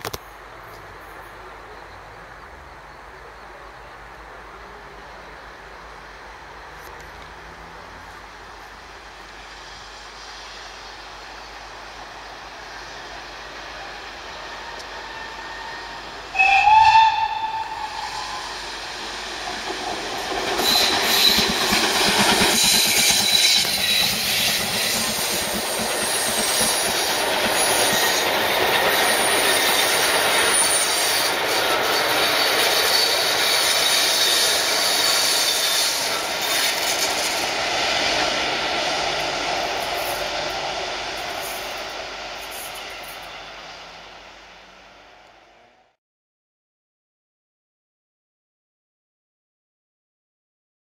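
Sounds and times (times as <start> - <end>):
train wheels rushing on rail: 4.2 - 46.0
steam locomotive whistle: 13.7 - 18.9, 20.6 - 21.6, 22.5 - 37.1.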